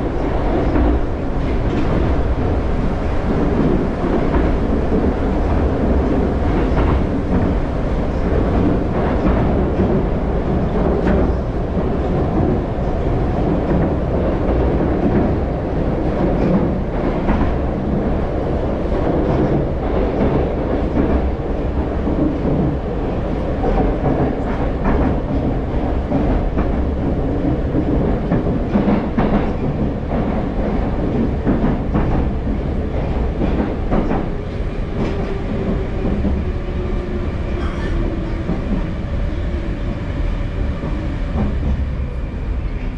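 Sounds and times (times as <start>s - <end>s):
train wheels rumbling in tunnel: 0.0s - 42.9s.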